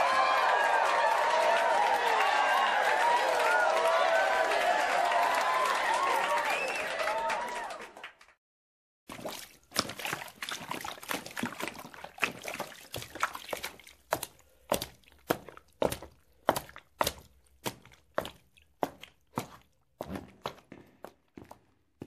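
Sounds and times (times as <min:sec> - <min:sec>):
footsteps: 0:09.1 - 0:22.0.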